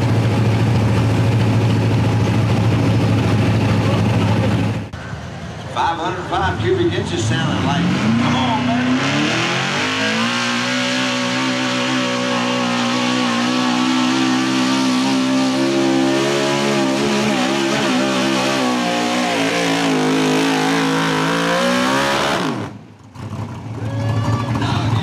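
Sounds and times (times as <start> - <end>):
truck engine running under load: 0.0 - 6.1.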